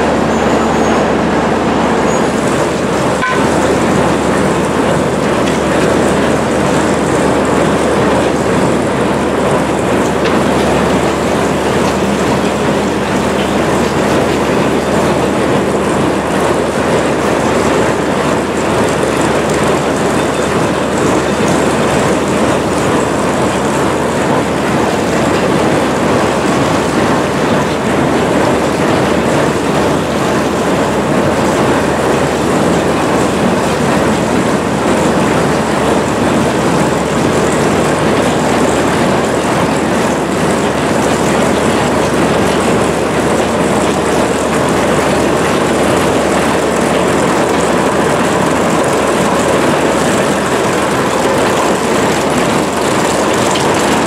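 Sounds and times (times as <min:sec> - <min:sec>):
train mechanical din: 0:00.0 - 0:54.0.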